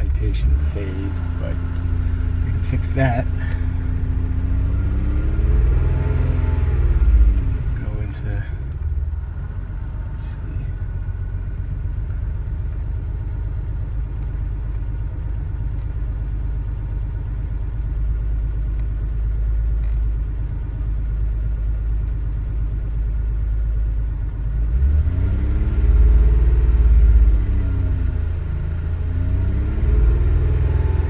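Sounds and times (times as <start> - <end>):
car engine revving: 0.0 - 16.1, 24.6 - 31.0
car engine idling: 0.0 - 25.0, 25.9 - 29.3.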